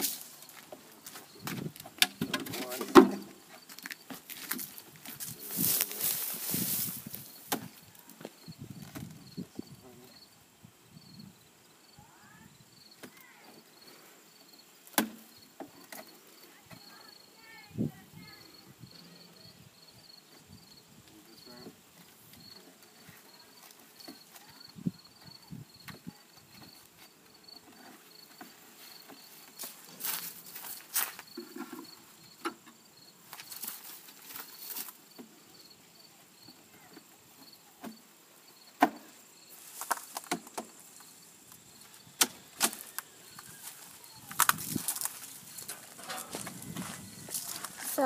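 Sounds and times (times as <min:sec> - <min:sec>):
rustles: 0:00.0 - 0:09.8, 0:20.3 - 0:48.0
insect chirping: 0:00.0 - 0:48.0.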